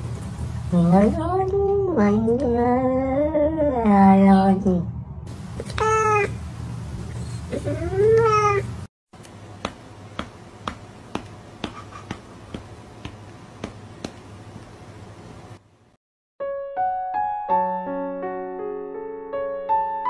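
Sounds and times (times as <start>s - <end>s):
cat meowing: 5.6s - 6.4s, 7.7s - 8.7s.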